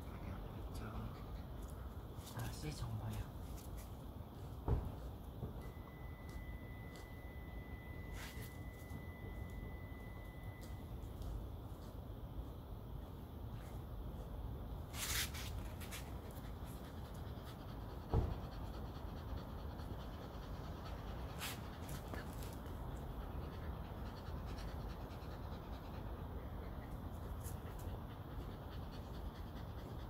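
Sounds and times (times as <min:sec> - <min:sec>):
dog panting: 0:00.1 - 0:02.7, 0:15.5 - 0:30.0
thump: 0:04.6 - 0:05.6, 0:18.0 - 0:18.5.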